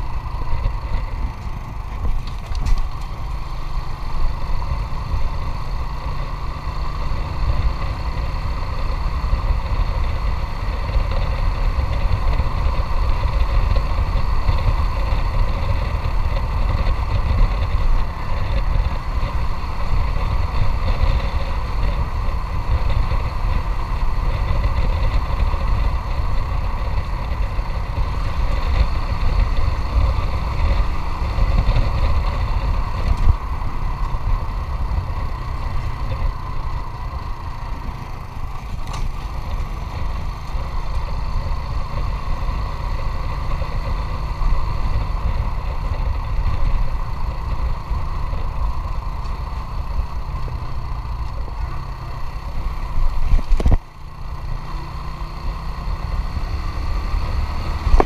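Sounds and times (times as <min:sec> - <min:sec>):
wind rumble on microphone: 0:00.0 - 0:54.9
motorcycle engine running: 0:00.0 - 0:58.0.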